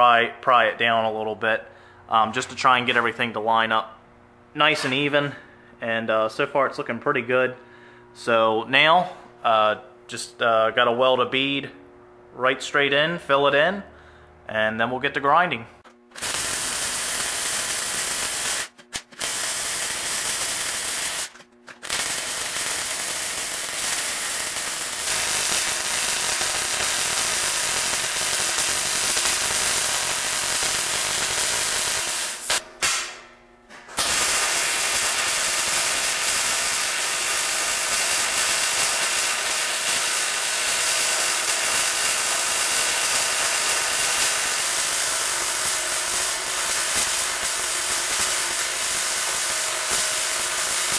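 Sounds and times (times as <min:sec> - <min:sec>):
welder arc crackling and hissing: 0:16.1 - 0:33.1, 0:34.0 - 0:50.9.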